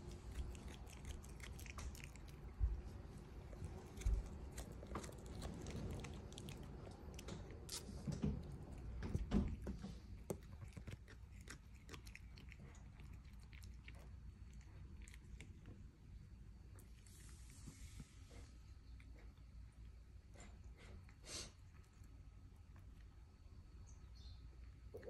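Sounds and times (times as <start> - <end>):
cat chewing grass crunches: 0.0 - 15.9.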